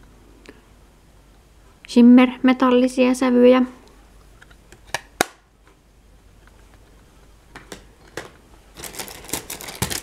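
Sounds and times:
plastic wrapping rustling: 8.7 - 10.0.

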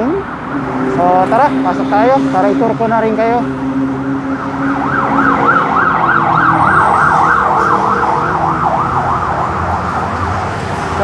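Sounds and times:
traffic hum: 0.0 - 11.0
siren yelping: 3.7 - 11.0.

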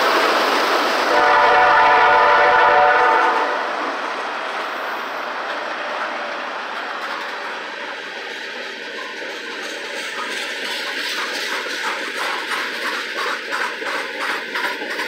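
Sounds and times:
train wheels rumbling on rail: 0.0 - 15.0
rhythmic wheel clatter: 6.8 - 15.0.

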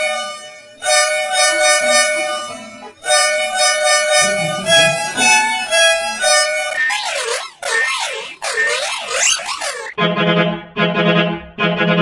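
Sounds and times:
two-note bus horn blasts: 0.0 - 6.8.

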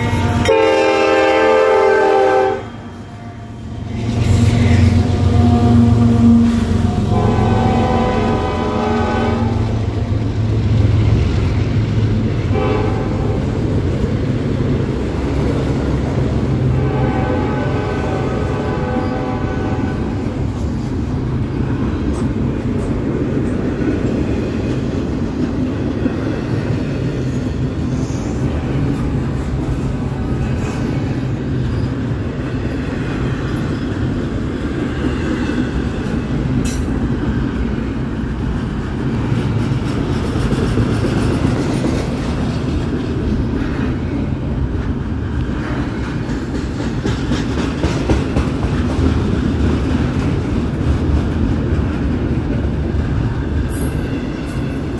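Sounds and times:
freight train wheels rumbling on rail: 0.0 - 54.9
clickety-clack of rail joints: 18.0 - 54.9.

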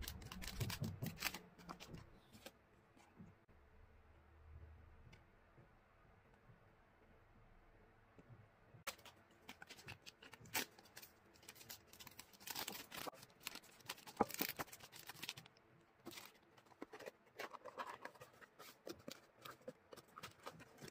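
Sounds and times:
plastic sleeve crinkling: 0.0 - 2.5, 8.9 - 20.9.

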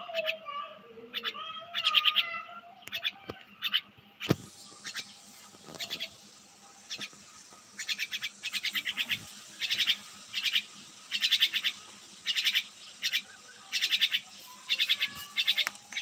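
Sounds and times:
bird chirping in rapid bursts: 1.1 - 16.0.

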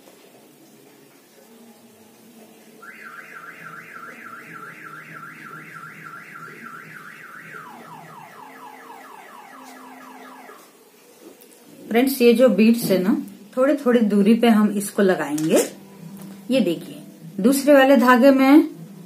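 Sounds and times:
electronic alarm wailing in sweeps: 2.8 - 10.8.

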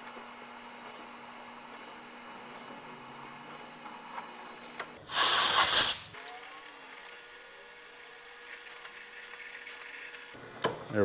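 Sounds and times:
compressed air blow gun burst: 5.1 - 6.1.

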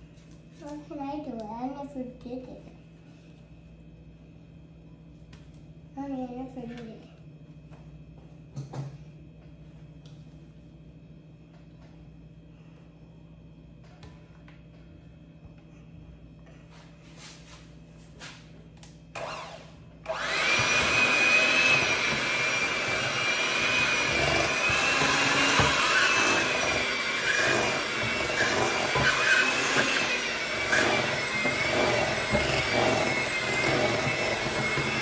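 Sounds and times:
electric hand mixer whining: 19.1 - 35.0
beaters churning batter: 20.2 - 35.0.

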